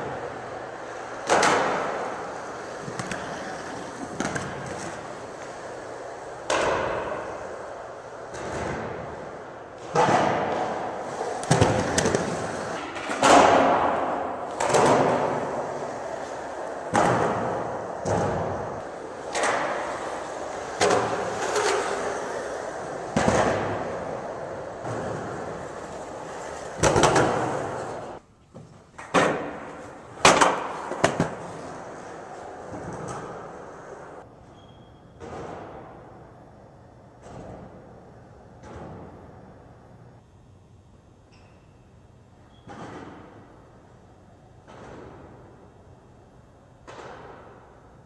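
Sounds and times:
skateboard clack: 0.0 - 28.2, 29.0 - 34.3, 46.8 - 48.0
skateboard rolling on hard floor: 0.0 - 34.3.

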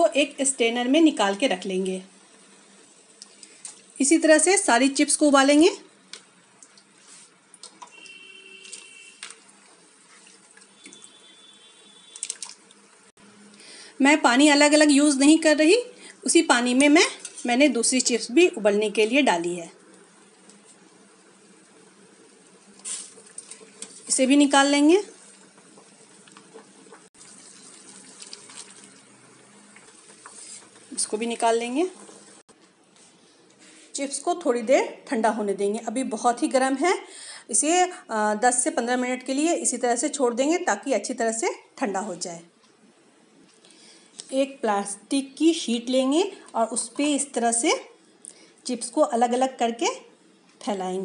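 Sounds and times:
water heating in pot: 0.1 - 32.6
small ticks and drips: 3.1 - 3.8, 6.1 - 13.1, 27.6 - 29.0.

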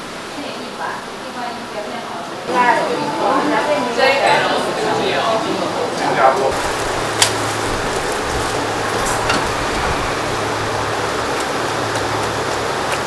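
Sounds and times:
water boiling: 0.0 - 13.0
low hum: 6.5 - 13.0.

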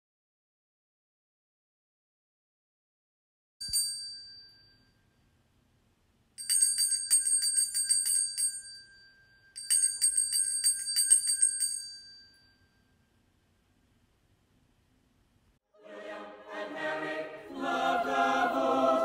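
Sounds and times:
handbell ringing: 3.6 - 5.0, 6.4 - 12.9.

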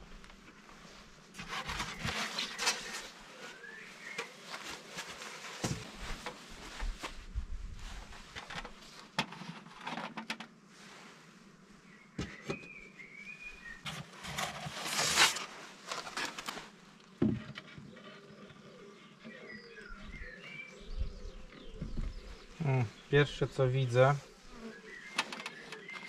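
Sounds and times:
scraping on beehive: 1.1 - 7.2, 13.6 - 20.8, 21.6 - 26.0.

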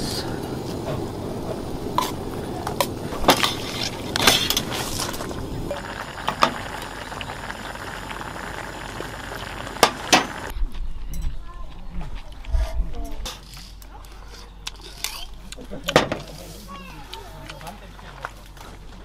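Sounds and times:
steady rushing hiss: 0.0 - 10.5.

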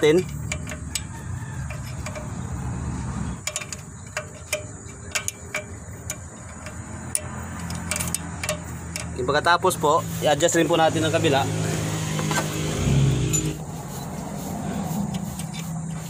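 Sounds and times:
brake adjuster clicking: 0.0 - 9.5.

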